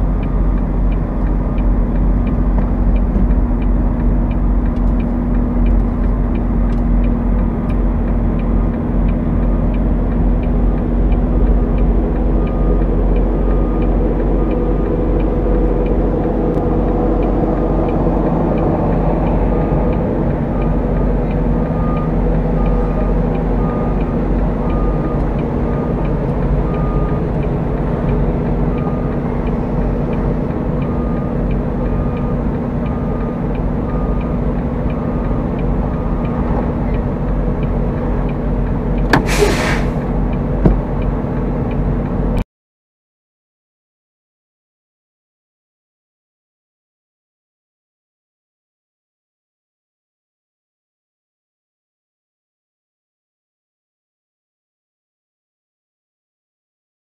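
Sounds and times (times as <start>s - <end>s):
diesel truck engine running: 0.0s - 42.4s
light regular ticking: 0.2s - 16.0s
short evenly spaced beeps: 11.1s - 14.7s, 21.7s - 30.2s.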